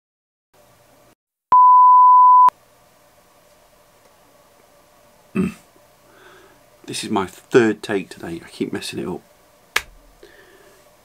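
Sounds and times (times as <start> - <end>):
electronic beep: 1.5 - 2.5
faint room hum: 2.5 - 11.0.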